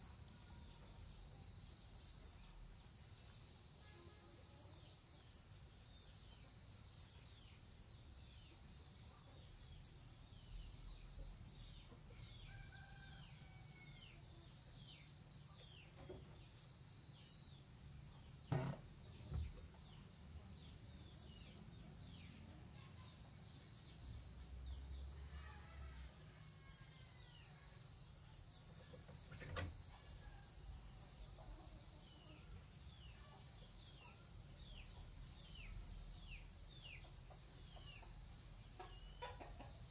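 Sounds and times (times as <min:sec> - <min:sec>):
high insect drone: 0:00.0 - 0:39.9
brief knocks: 0:18.5 - 0:19.6.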